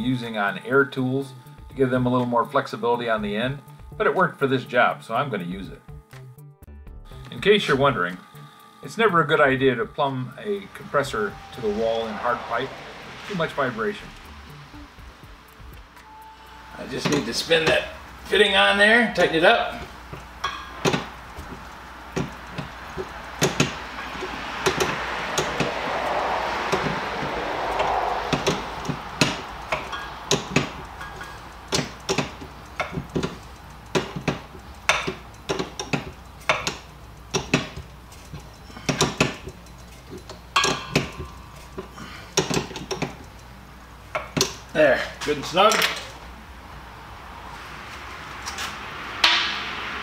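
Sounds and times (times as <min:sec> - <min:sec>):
soft rushing air: 0:10.4 - 0:35.4, 0:45.3 - 0:50.0.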